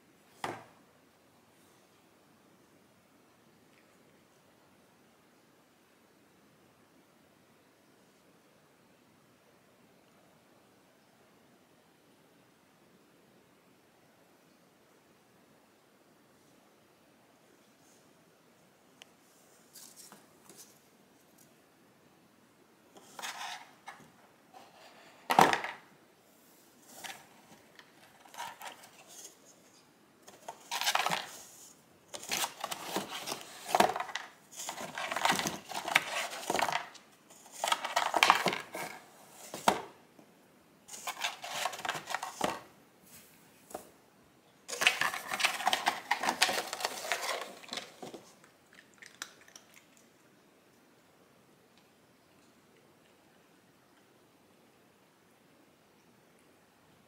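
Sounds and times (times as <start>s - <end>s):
rustling and clattering objects: 23.0s - 25.9s, 26.5s - 40.0s, 40.9s - 44.0s, 44.7s - 48.4s.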